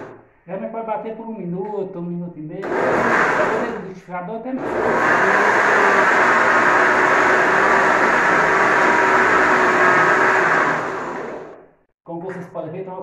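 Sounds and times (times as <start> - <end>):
electric blender running: 2.6 - 3.8, 4.6 - 11.6
blender motor winding down: 2.6 - 3.9, 4.6 - 11.6.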